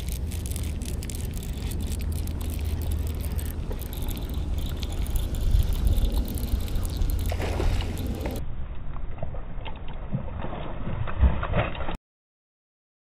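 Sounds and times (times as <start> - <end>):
light clicks and ticks: 0.0 - 8.4
wind buffeting microphone: 0.0 - 8.6.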